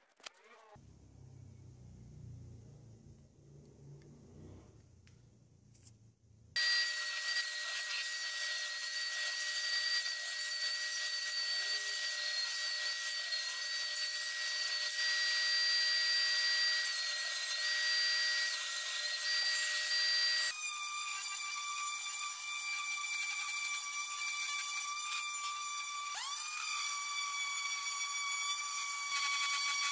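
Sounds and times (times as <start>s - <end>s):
handheld orbital sander whining: 6.6s - 20.6s.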